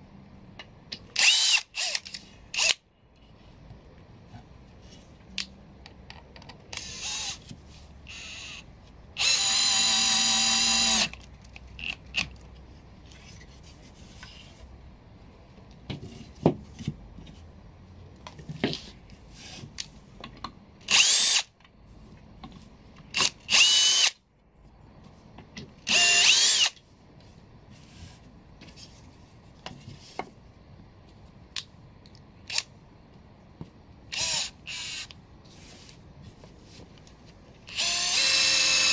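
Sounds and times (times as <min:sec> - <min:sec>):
drill driving screws into wood: 0:01.2 - 0:02.8, 0:06.8 - 0:07.4, 0:09.2 - 0:11.2, 0:20.9 - 0:21.5, 0:23.2 - 0:24.2, 0:25.9 - 0:26.8, 0:34.1 - 0:35.1, 0:37.7 - 0:38.9.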